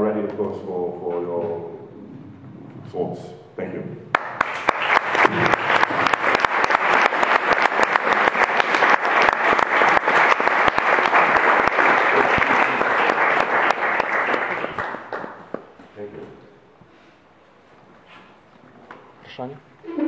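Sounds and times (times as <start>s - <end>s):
audience clapping: 4.1s - 15.8s.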